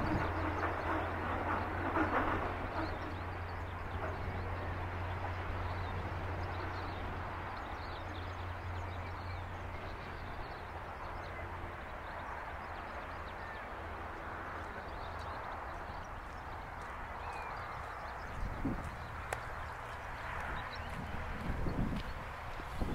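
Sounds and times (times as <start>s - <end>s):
distant locomotive engine drone: 0.0s - 22.9s
outdoor noise: 0.0s - 22.9s.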